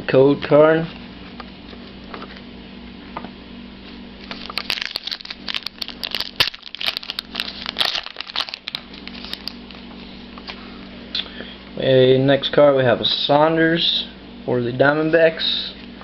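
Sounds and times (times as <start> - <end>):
wrapper tearing and crinkling: 4.2 - 9.8.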